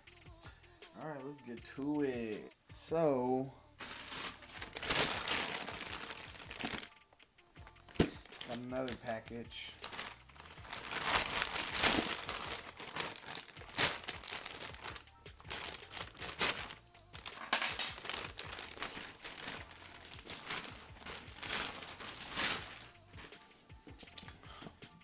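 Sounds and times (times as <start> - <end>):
packaging crinkling: 3.8 - 6.9, 7.9 - 9.2, 9.8 - 23.3.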